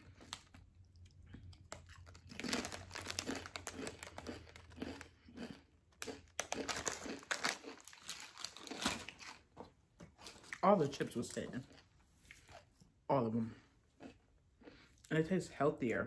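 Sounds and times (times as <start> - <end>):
chewing crisp potato chips: 0.0 - 15.3
plastic chip bag crinkling: 1.4 - 9.5.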